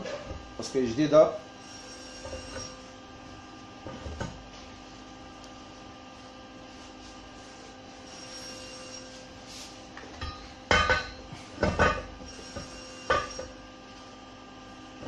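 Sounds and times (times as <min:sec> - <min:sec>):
metal clanks and knocks: 0:10.2 - 0:12.1.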